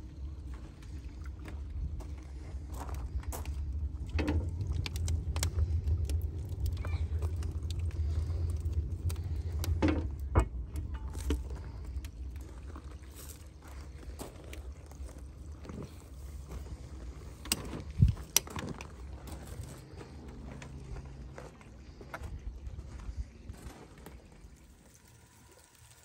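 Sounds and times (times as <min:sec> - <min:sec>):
low rumble: 0:00.0 - 0:25.3
crackle-like clicks: 0:03.4 - 0:12.5, 0:17.3 - 0:19.5.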